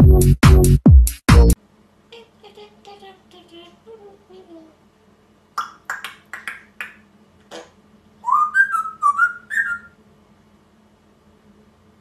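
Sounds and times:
parrot calls: 0:05.6 - 0:10.0
parrot whistling a phrase: 0:08.2 - 0:10.0.

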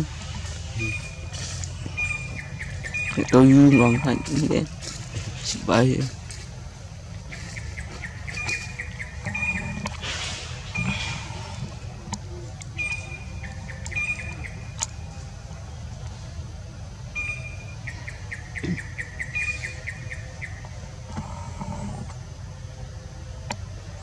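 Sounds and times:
low outdoor rumble: 0:00.0 - 0:24.0
bird whistling call: 0:12.7 - 0:14.8, 0:17.2 - 0:20.6.

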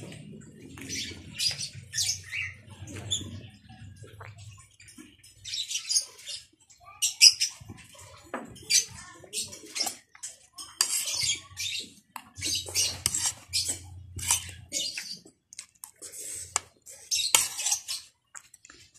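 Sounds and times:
person slurping from bowl: 0:15.8 - 0:17.9.

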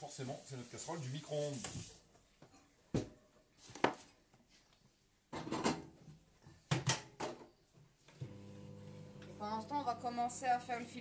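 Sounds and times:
cookware knocking and clattering: 0:05.3 - 0:06.0.

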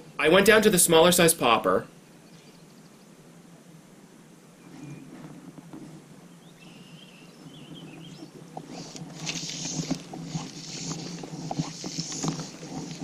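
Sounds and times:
fly line rasping hiss: 0:08.6 - 0:13.0.

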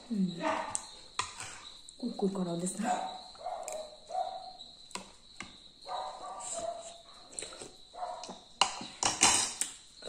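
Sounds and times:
dog barking: 0:03.0 - 0:04.6, 0:05.8 - 0:07.0, 0:08.0 - 0:08.4.

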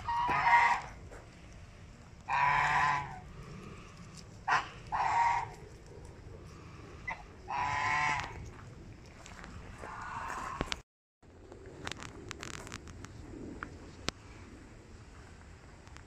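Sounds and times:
geese honking: 0:00.0 - 0:01.0, 0:02.3 - 0:03.2, 0:04.5 - 0:05.6, 0:07.0 - 0:08.4, 0:09.8 - 0:10.8.

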